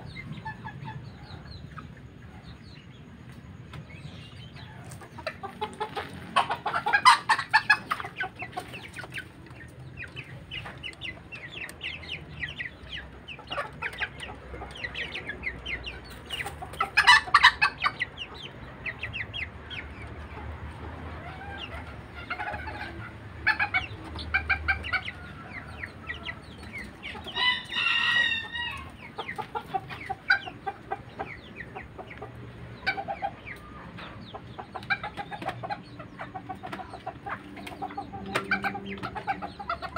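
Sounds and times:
chickens clucking: 0:00.0 - 0:39.9
rooster crowing: 0:27.3 - 0:29.0.

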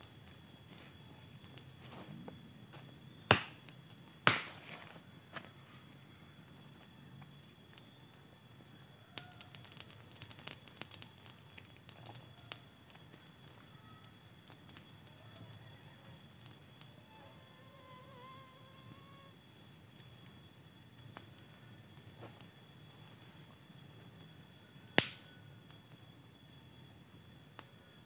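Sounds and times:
campfire crackling: 0:00.0 - 0:28.0
loud wooden snaps: 0:25.0 - 0:25.3.

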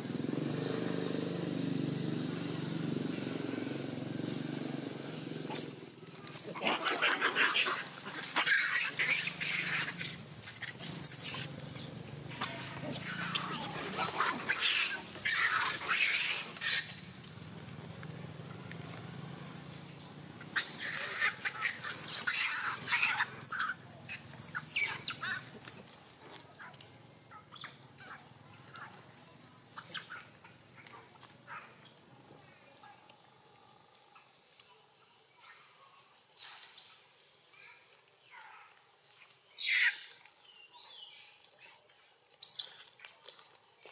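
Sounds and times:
baby monkey screaming: 0:05.5 - 0:17.0, 0:20.5 - 0:25.8, 0:29.8 - 0:30.4, 0:39.5 - 0:40.1
high-pitched animal chirping: 0:05.5 - 0:17.0, 0:20.5 - 0:25.8, 0:29.8 - 0:30.3.

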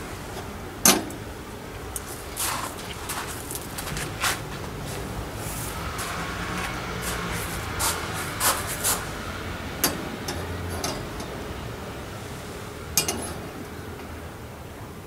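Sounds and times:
metal rods clinking: 0:13.0 - 0:13.4.

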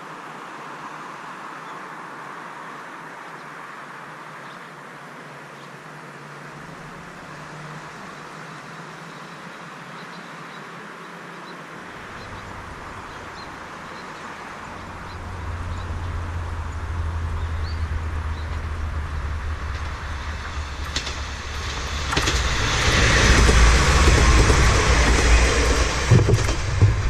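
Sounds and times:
wheel-on-rail noise: 0:06.5 - 0:10.1, 0:11.9 - 0:27.0
diesel railcar engine rumble: 0:12.0 - 0:27.0
sharp clacks of wheels: 0:14.8 - 0:27.0.

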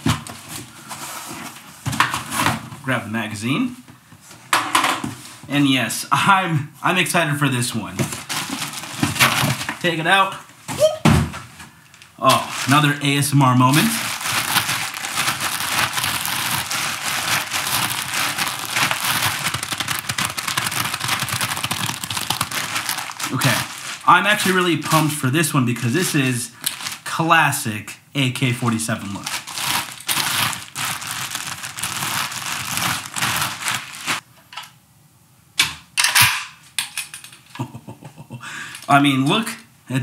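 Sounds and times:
plastic bag crinkling: 0:08.1 - 0:10.0, 0:11.8 - 0:27.2, 0:28.7 - 0:34.2.

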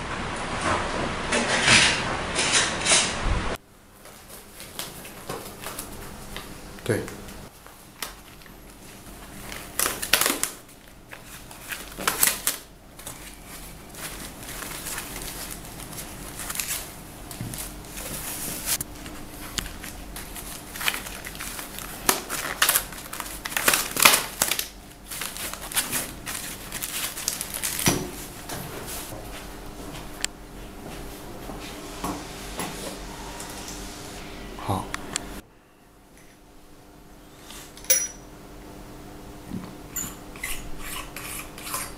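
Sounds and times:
plastic packaging crinkling: 0:08.0 - 0:28.4.

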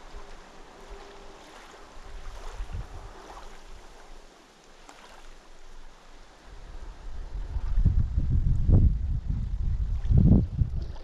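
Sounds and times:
wind buffeting microphone: 0:00.0 - 0:04.2, 0:06.4 - 0:11.0
small waves lapping: 0:00.0 - 0:07.8, 0:09.0 - 0:11.0.

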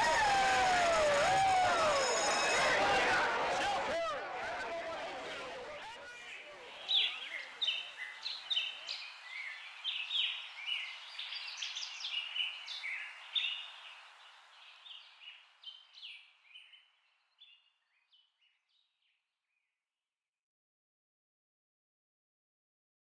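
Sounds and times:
birds chirping: 0:02.0 - 0:18.9.

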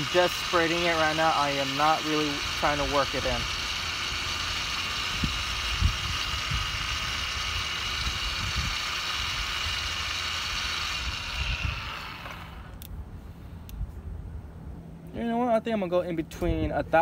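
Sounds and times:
rotary polisher whining: 0:00.0 - 0:12.9.

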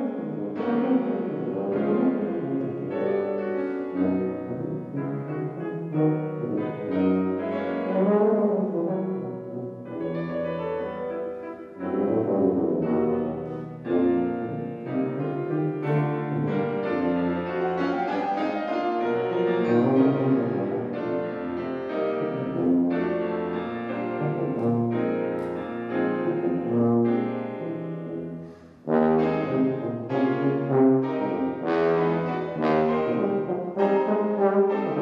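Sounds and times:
piano chords: 0:00.0 - 0:35.0
tuba sustained notes: 0:00.0 - 0:35.0.

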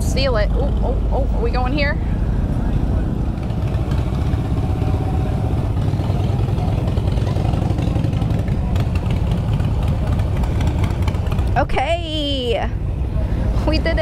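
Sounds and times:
motorcycle engine running at low revs: 0:02.6 - 0:12.4.

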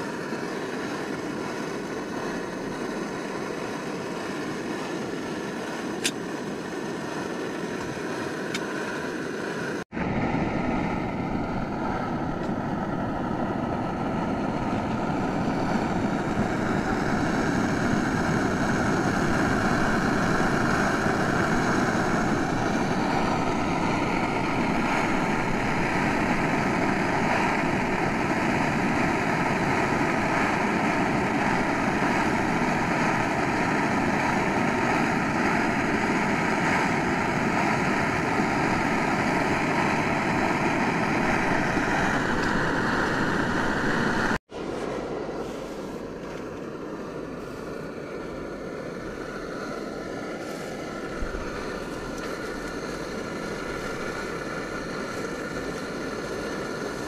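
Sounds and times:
gas stove burning: 0:00.0 - 0:57.0
food frying in oil: 0:49.0 - 0:57.0.

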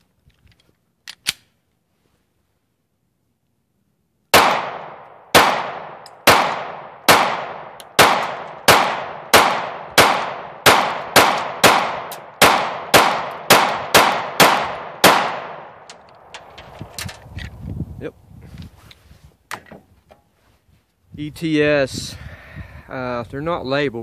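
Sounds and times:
pistol shots: 0:04.3 - 0:15.8.

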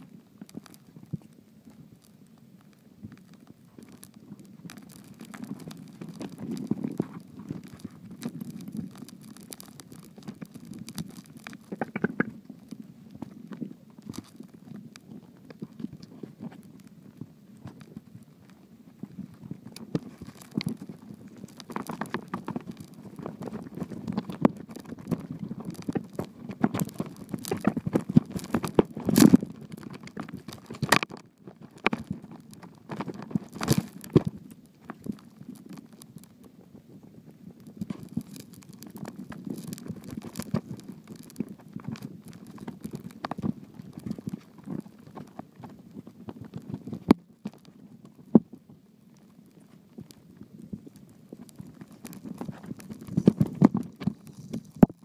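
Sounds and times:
underwater clicks and knocks: 0:04.7 - 0:14.4
underwater rumble of moving water: 0:10.2 - 0:14.1.

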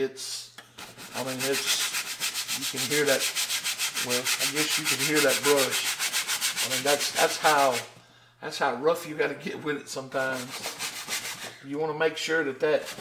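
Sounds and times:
paint brush scrubbing canvas: 0:00.8 - 0:07.9, 0:10.2 - 0:11.6, 0:12.8 - 0:13.0.

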